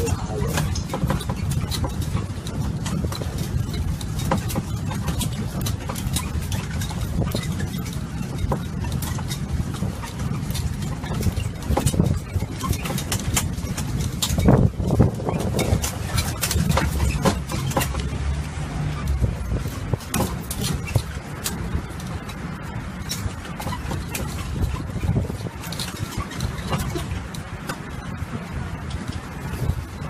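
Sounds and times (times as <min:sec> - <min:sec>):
carriage clicks and knocks: 0:00.0 - 0:18.2, 0:19.1 - 0:21.7
low engine rumble: 0:00.0 - 0:30.0.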